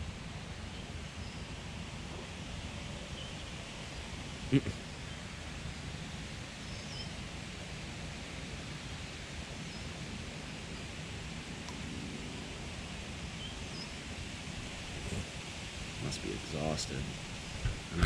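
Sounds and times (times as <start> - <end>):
outdoor background hiss: 0.0 - 18.0
faint bird chirps: 6.6 - 7.2.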